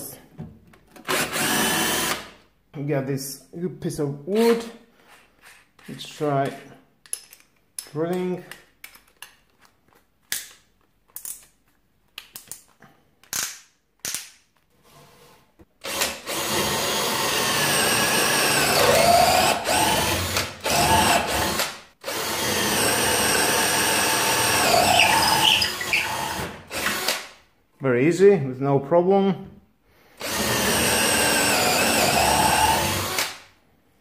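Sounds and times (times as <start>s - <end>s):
drill motor whine: 15.9s - 27.1s, 30.2s - 33.2s.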